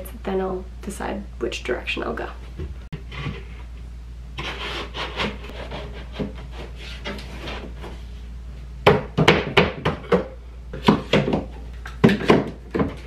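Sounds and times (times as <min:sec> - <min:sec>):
plywood panel scraping: 0:04.4 - 0:08.2
sharp wooden knocks: 0:08.9 - 0:13.0.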